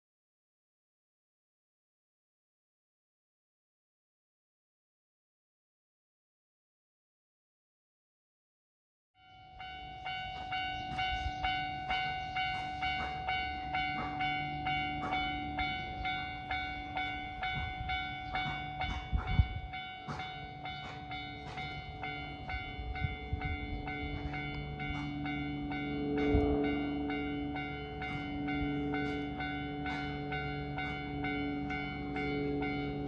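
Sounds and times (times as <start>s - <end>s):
level crossing bell clanging: 9.2s - 33.0s.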